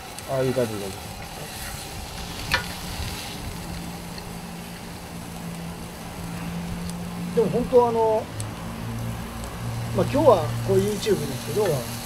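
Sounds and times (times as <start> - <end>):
meat hissing on a grill: 0.0 - 12.0
tongs clicking on a grill: 11.2 - 11.9.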